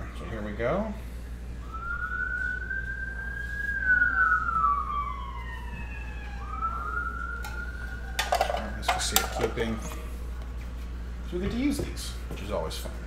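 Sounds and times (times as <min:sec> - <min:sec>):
siren wailing: 0:01.6 - 0:10.0.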